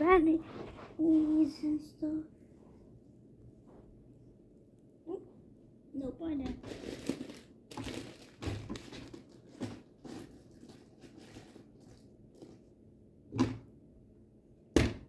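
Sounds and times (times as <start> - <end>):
rustles and knocks of handling: 6.4 - 12.7.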